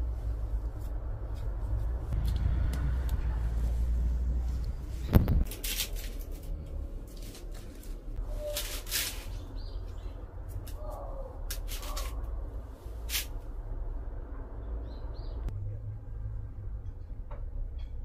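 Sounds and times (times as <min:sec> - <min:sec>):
low steady rumble: 0:00.0 - 0:08.4
leaves and pot rustling: 0:00.0 - 0:13.5.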